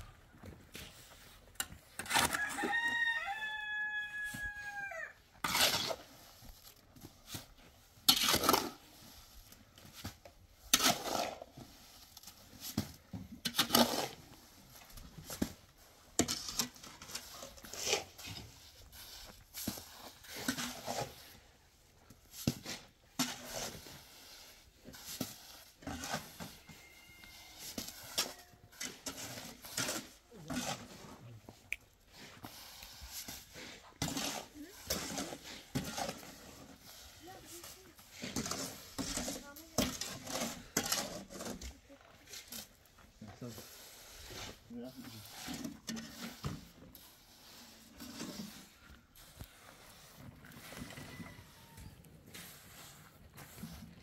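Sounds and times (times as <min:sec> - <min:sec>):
rooster crowing: 0:02.3 - 0:05.1, 0:50.9 - 0:52.0.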